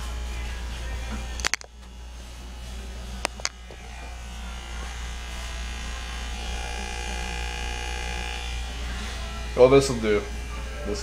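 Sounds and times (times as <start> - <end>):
hair clippers buzzing: 1.1 - 2.1, 3.0 - 11.0
sharp clicks: 1.4 - 1.7, 3.2 - 3.6.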